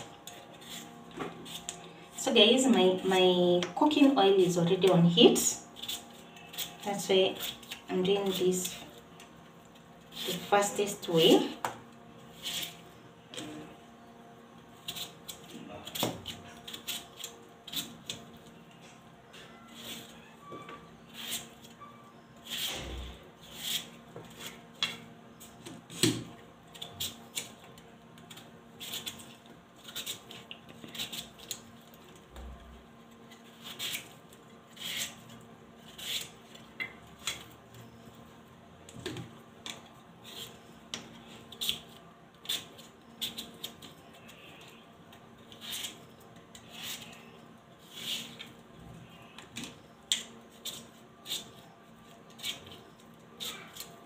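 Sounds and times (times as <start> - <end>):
knife slicing potatoes: 4.7 - 8.9, 33.4 - 36.4.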